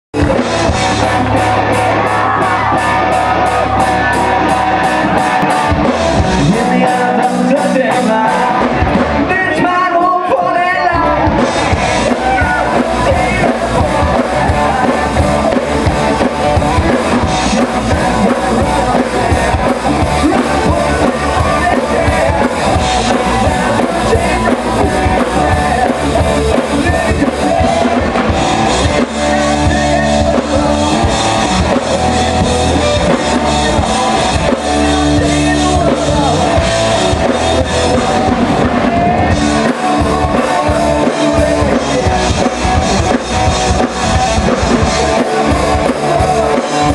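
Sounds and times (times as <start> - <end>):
bass guitar: 0.0 - 46.9
drum kit: 0.1 - 46.9
electric guitar: 0.2 - 46.9
man singing: 0.2 - 46.9.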